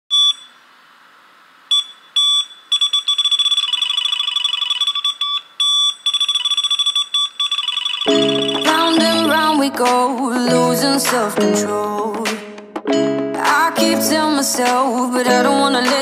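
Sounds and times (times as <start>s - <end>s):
high-pitched electronic beeping: 1.7s - 9.7s.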